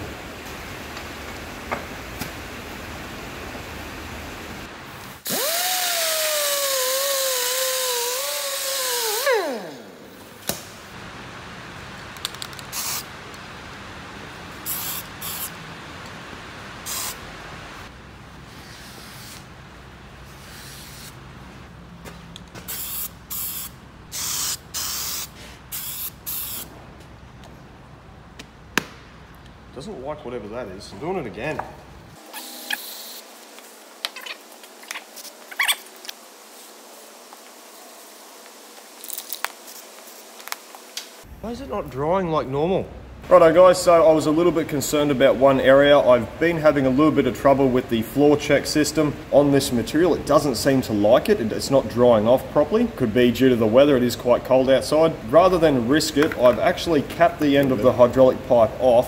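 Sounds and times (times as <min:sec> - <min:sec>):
angle grinder with wire wheel: 0:05.3 - 0:09.8
aerosol spray can hisses: 0:14.7 - 0:15.5, 0:16.9 - 0:17.2, 0:22.7 - 0:26.7.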